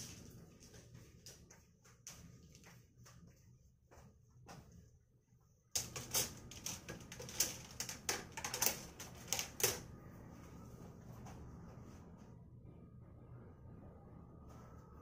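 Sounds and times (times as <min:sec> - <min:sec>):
low steady hum: 0:00.0 - 0:15.0
plastic hangers clattering: 0:05.8 - 0:09.9.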